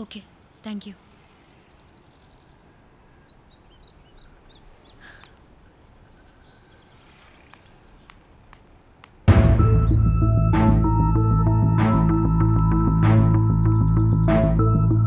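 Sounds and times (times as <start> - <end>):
faint bird chirps: 0.0 - 9.3
faint clicks: 7.3 - 9.2
music with deep low notes: 9.3 - 15.0.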